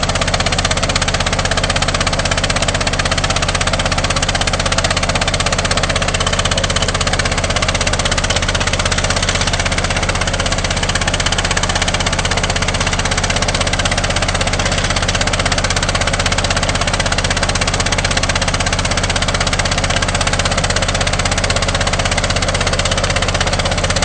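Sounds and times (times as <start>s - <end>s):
engine and pump running: 0.0s - 24.0s
water rushing: 5.8s - 15.7s.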